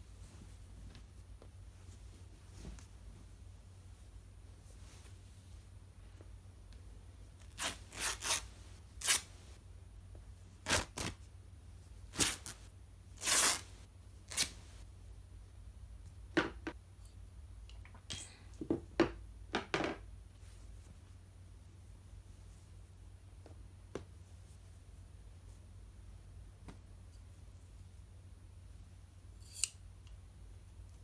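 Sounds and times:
bedsheet ripping by hand: 10.6s - 11.2s.

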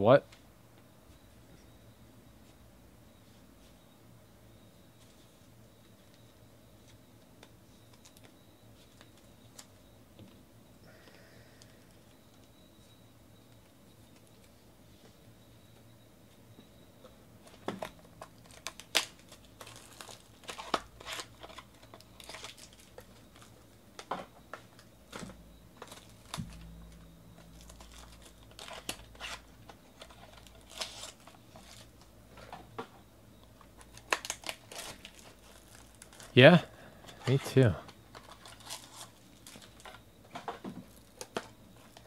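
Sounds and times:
foil wrapping crinkling and tearing: 18.3s - 23.5s, 27.5s - 29.4s, 30.0s - 31.9s, 33.8s - 36.4s, 38.1s - 40.0s.

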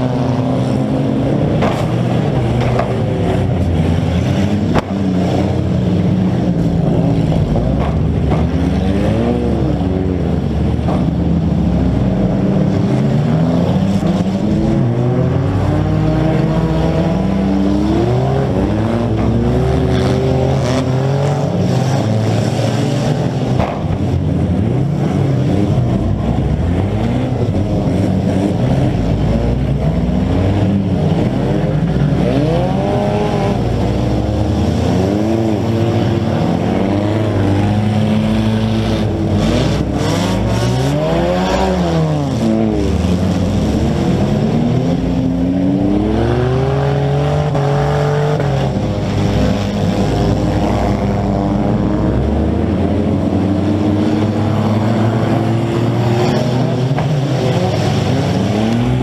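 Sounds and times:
car engines revving: 0.0s - 59.0s
sharp knocks of cars colliding: 1.6s - 3.1s.

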